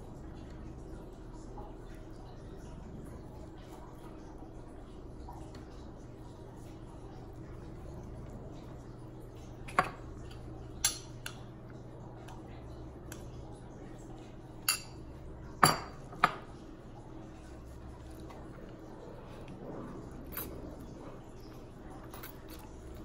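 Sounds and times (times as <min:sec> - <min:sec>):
metal spoon clinking on glass: 0:14.6 - 0:15.0.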